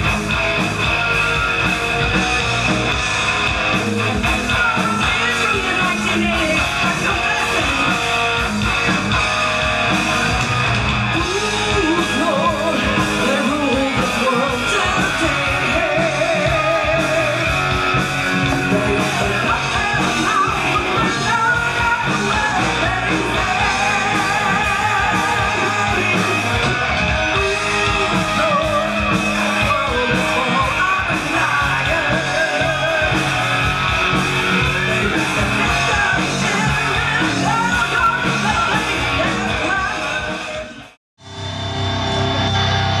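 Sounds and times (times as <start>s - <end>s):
rock band playing live: 0.0s - 43.0s
woman singing lead: 4.2s - 9.3s, 11.1s - 33.5s, 34.7s - 40.8s.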